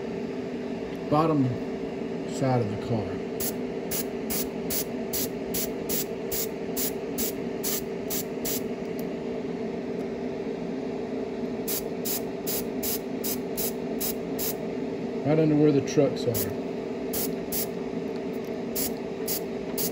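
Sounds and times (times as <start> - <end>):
steady motor hum: 0.0 - 19.9
airbrush hissing bursts: 3.4 - 8.6, 11.7 - 14.6, 17.1 - 17.7, 18.8 - 19.9.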